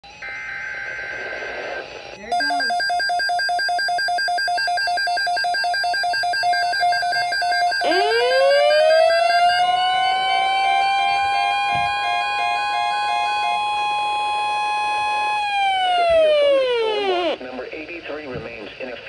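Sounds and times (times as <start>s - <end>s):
pulsing two-tone beeping: 0.0s - 17.4s
siren-like rising tone: 6.5s - 17.4s.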